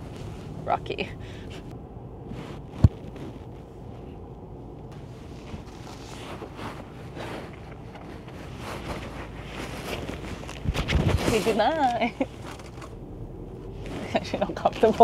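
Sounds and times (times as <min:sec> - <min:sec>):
car cabin rumble: 0:00.0 - 0:15.0
fabric rustling: 0:01.5 - 0:13.0.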